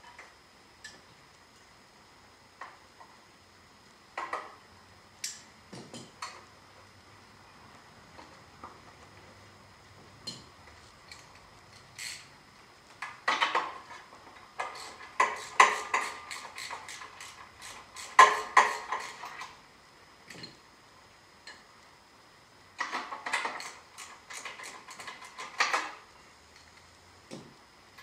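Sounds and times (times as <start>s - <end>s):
hand tools clicking on metal: 14.6s - 19.5s.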